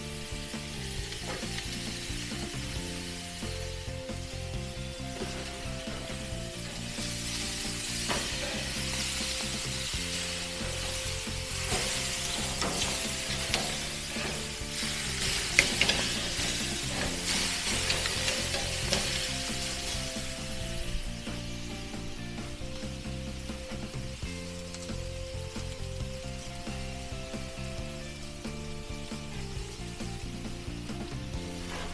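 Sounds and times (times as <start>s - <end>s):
steaks sizzling on a grill: 0.0s - 31.9s
metal tongs clicking on grate: 11.7s - 14.5s, 15.2s - 19.2s.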